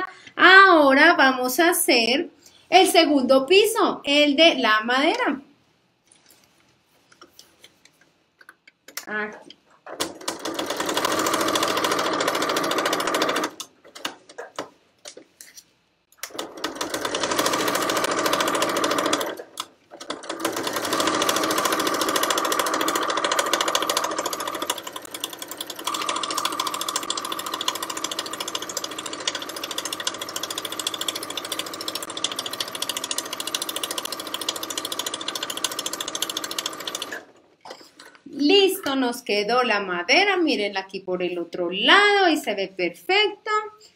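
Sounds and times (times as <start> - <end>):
sewing machine stitching: 9.8 - 14.6, 16.2 - 37.5.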